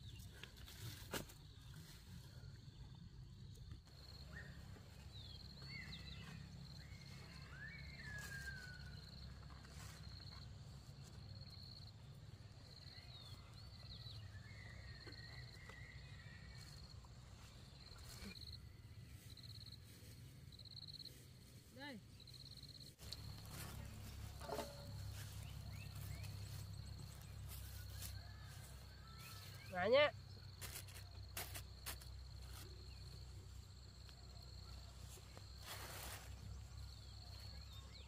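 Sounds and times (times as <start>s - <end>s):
bird calls with gliding whistles: 5.6s - 9.1s.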